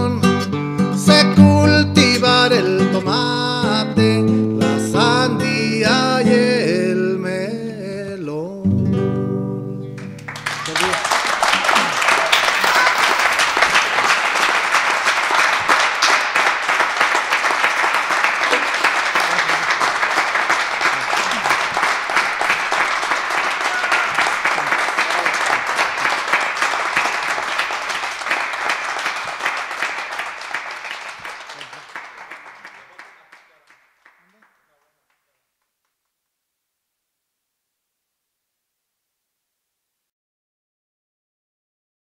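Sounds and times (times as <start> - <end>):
audience applauding: 10.0 - 35.4.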